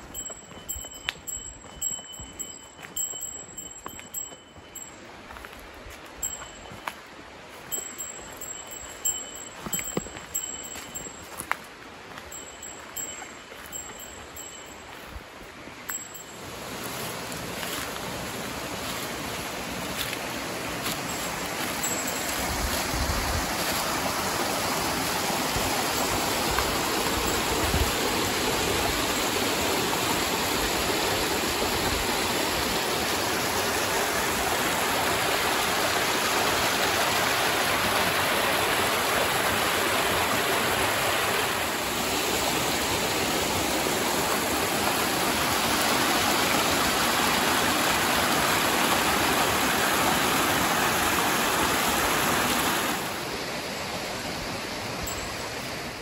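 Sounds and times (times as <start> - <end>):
stream water rushing: 0.0 - 56.0.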